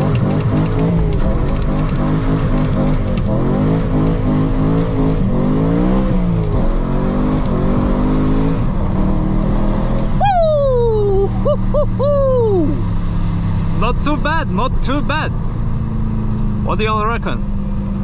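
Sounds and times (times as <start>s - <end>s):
car engine revving hard: 0.0s - 10.2s.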